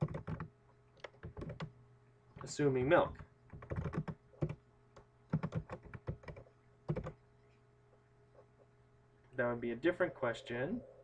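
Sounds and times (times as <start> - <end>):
keyboard keys clicking: 0.0 - 1.7, 3.1 - 4.6, 5.3 - 7.2.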